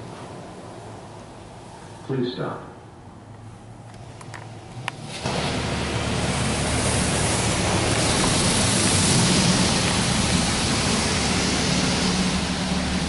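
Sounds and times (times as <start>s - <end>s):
water jets spraying on car: 4.0s - 13.0s
low hum: 4.6s - 13.0s.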